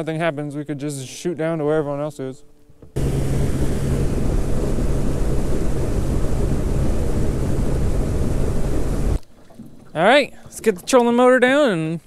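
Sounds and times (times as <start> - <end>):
outboard motor running: 3.0 - 9.2
wind buffeting microphone: 3.0 - 9.2
water rushing past hull: 3.0 - 11.2.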